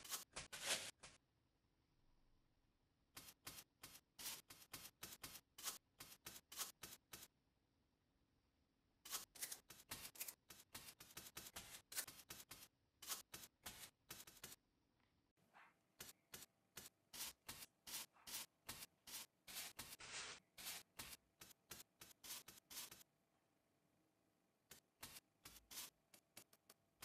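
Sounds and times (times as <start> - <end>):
paintbrush dabbing on foam: 3.1 - 7.3, 9.0 - 14.6, 15.4 - 23.1, 24.6 - 27.0.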